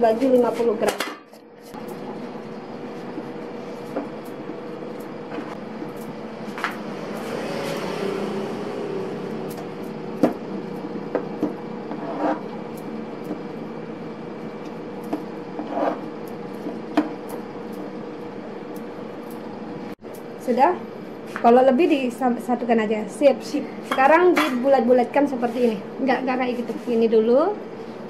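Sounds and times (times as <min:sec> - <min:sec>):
background hum: 0:00.0 - 0:28.0
dough cutter knocking on wood: 0:10.2 - 0:10.5, 0:11.1 - 0:12.1.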